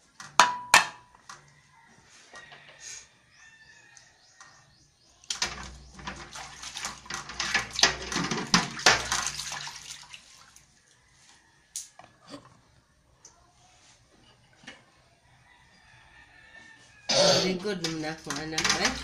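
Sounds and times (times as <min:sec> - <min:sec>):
hands splashing water in metal basin: 0:05.2 - 0:10.8, 0:17.7 - 0:19.0
plastic bowl being scrubbed: 0:05.5 - 0:10.3.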